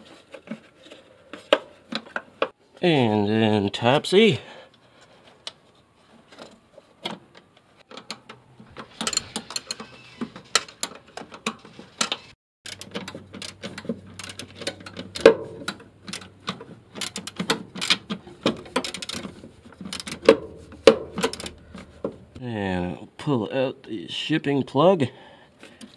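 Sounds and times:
ratchet wrench clicking: 12.7 - 13.6, 14.2 - 15.3, 17.0 - 18.0, 18.8 - 19.3, 19.9 - 21.6.

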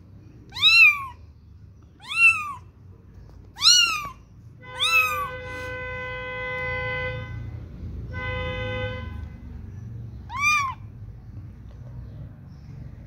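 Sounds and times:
kitten mewing: 0.4 - 1.2, 2.0 - 2.7, 3.5 - 4.2, 4.8 - 5.7, 10.3 - 10.9
horn honking: 4.6 - 9.7.

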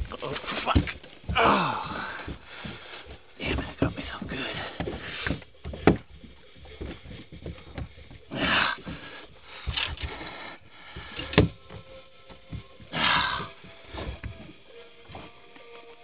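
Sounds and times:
handling knocks and rubbing: 0.0 - 16.0
man's pained breaths: 1.3 - 3.4, 6.6 - 11.6, 12.8 - 14.3.

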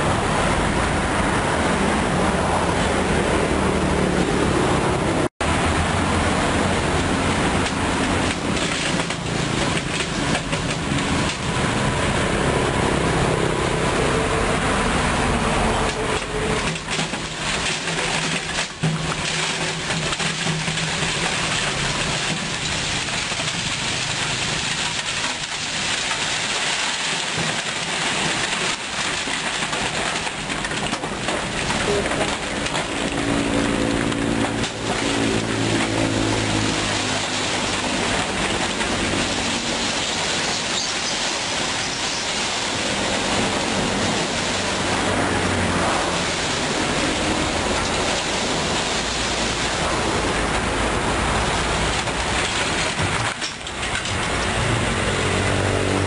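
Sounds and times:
truck engine running: 3.8 - 56.0.

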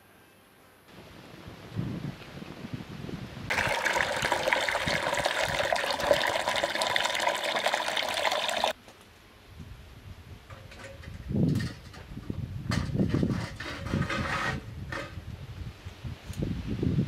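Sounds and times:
water pouring into metal heater: 3.5 - 8.8.

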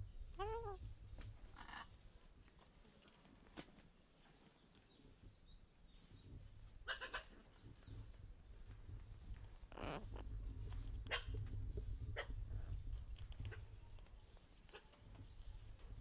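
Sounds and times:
parrot chirping: 0.4 - 0.8
parrot harsh call: 0.4 - 0.8.

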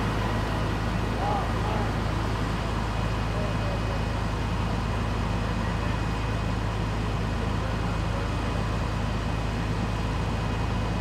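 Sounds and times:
engines idling: 0.0 - 11.0.

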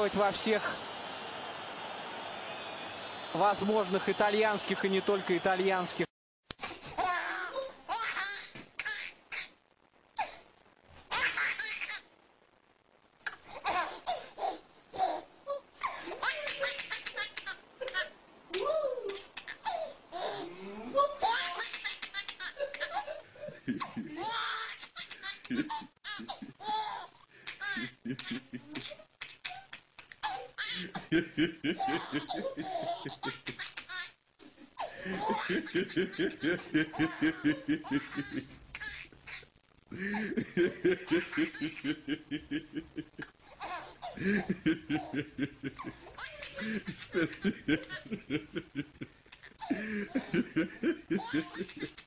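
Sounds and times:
baby laughing: 6.6 - 9.6, 11.1 - 12.1, 13.2 - 52.0
man laughing: 23.4 - 24.3, 30.8 - 33.4, 34.9 - 38.5, 39.9 - 43.2, 44.0 - 52.0.

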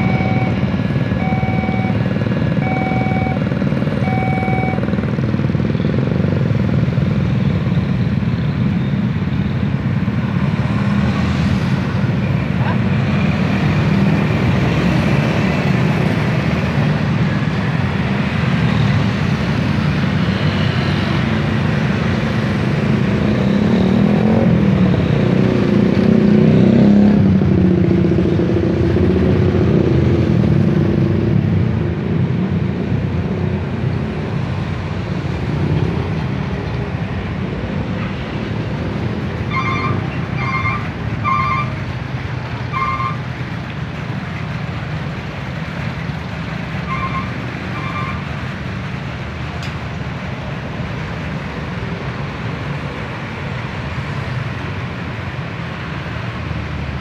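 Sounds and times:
short beeps: 0.0 - 0.6, 1.2 - 2.0, 2.6 - 3.4, 4.0 - 4.9
motorcycles and cars passing: 0.0 - 57.0.

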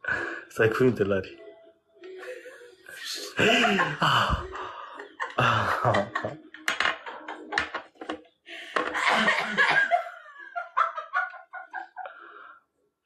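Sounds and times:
man laughing: 3.2 - 6.4
woman laughing: 3.2 - 7.6, 9.0 - 12.1.

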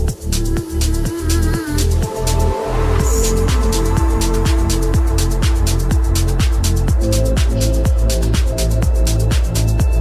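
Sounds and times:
held bass and synth chord: 2.1 - 10.0
hi-hats: 3.0 - 10.0
kick drum: 3.0 - 10.0.

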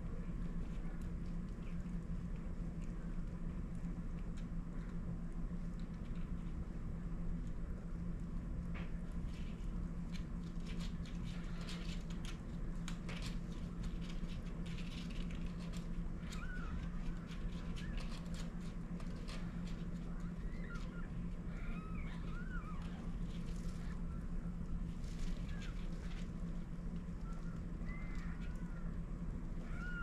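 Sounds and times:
low steady hum: 0.0 - 30.0
kittens squeaking: 16.3 - 17.0, 20.3 - 23.1, 29.6 - 30.0.

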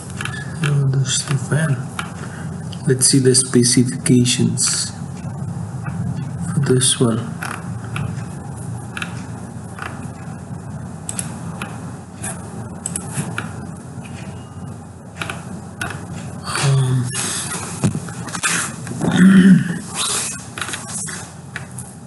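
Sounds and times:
low background hum: 0.0 - 22.0
computer mouse clicks: 11.1 - 11.8.

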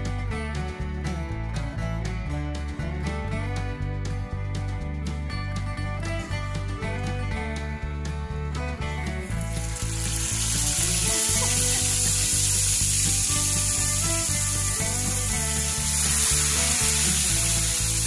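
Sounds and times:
background music with steady beat: 0.0 - 18.0
fish sizzling in hot oil: 9.2 - 18.0.

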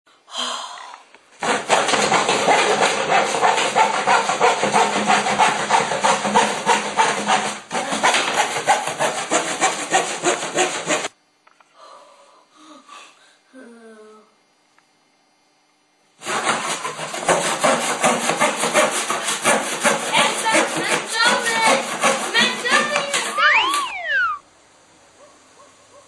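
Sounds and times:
handsaw cutting wood: 1.4 - 11.1, 16.2 - 23.6.

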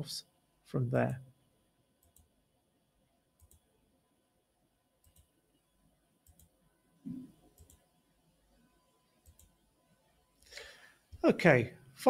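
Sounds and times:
computer mouse clicks: 2.0 - 2.3, 3.4 - 3.7, 5.0 - 5.4, 6.2 - 6.6, 7.5 - 7.9, 9.2 - 9.6.

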